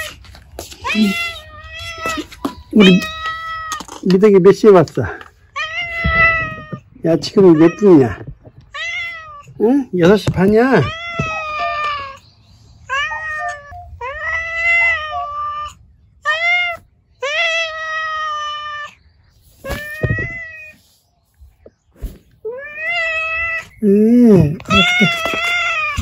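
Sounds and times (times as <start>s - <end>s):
cat meowing: 0.0s - 3.9s, 5.5s - 9.6s, 10.7s - 12.2s, 12.9s - 19.0s, 19.6s - 20.8s, 22.4s - 26.0s.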